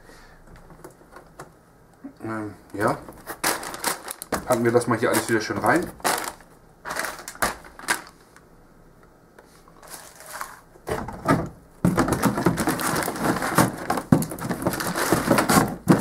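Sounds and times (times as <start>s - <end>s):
plastic shell handled: 2.7s - 8.2s, 9.8s - 16.0s
plastic bags crinkling: 2.8s - 8.2s, 9.8s - 10.7s, 11.9s - 16.0s.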